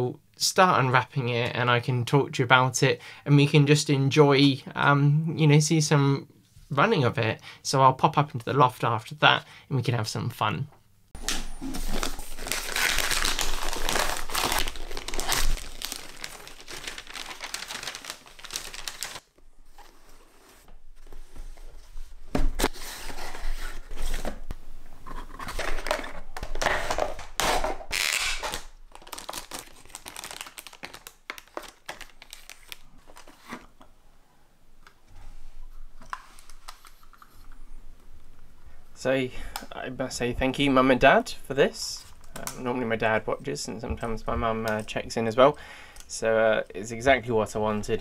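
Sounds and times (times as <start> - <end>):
wrapping paper tearing: 11.8 - 19.3, 26.6 - 32.9.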